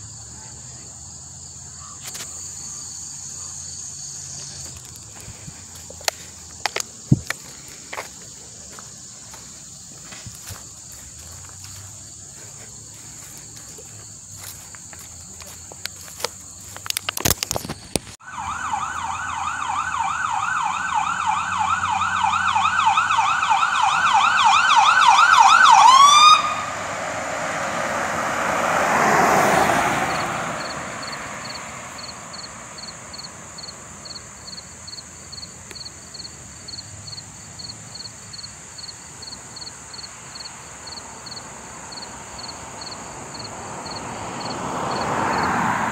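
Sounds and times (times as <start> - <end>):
insects buzzing: 0.0 - 45.9
vehicle passing by: 2.3 - 17.0, 26.3 - 34.4, 40.2 - 45.9
siren yelping: 18.2 - 26.7.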